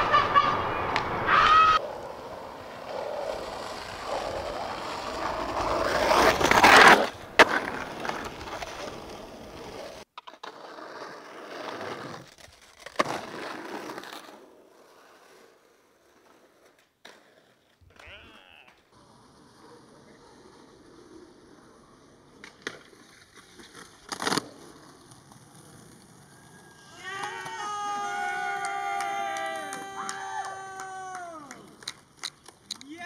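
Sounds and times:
skateboard scraping: 0.0s - 30.7s
skateboard wheels rolling on pavement: 0.0s - 33.0s
skateboard clacking: 22.1s - 33.0s.

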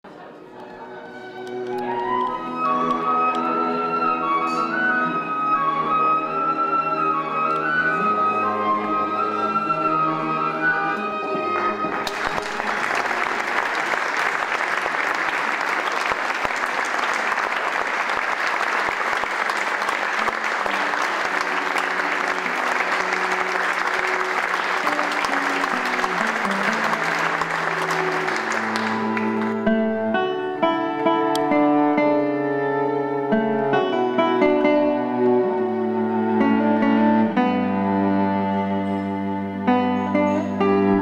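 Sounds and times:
cello and plucked strings: 0.1s - 13.4s, 20.4s - 41.0s
audience applauding: 10.8s - 29.8s.

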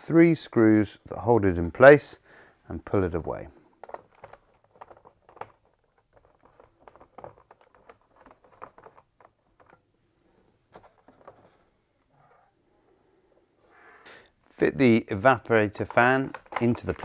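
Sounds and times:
plastic fan being handled: 3.8s - 9.8s, 15.7s - 17.0s.

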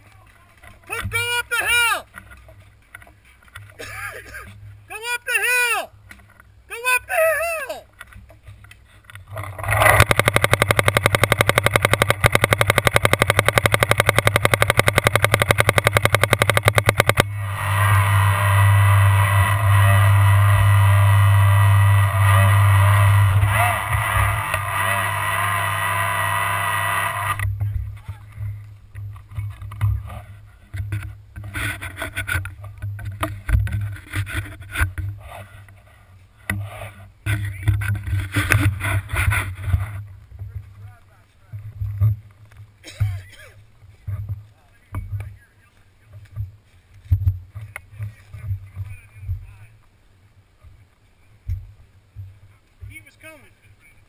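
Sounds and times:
low rumble: 9.2s - 30.6s
sharp knocks: 9.4s - 17.5s
paintball marker firing rapidly: 9.6s - 17.4s.

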